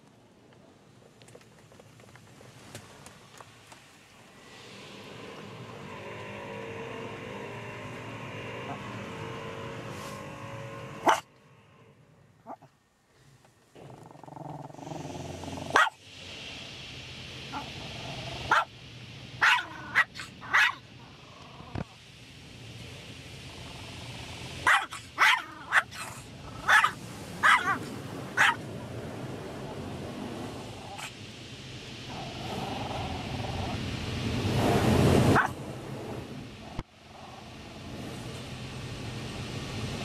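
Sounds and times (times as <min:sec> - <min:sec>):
car wash rushing noise: 0:02.4 - 0:12.1, 0:14.8 - 0:21.2, 0:22.0 - 0:40.0
dog barking sharply: 0:15.8 - 0:16.0, 0:24.7 - 0:25.9, 0:26.7 - 0:27.8, 0:28.4 - 0:28.6.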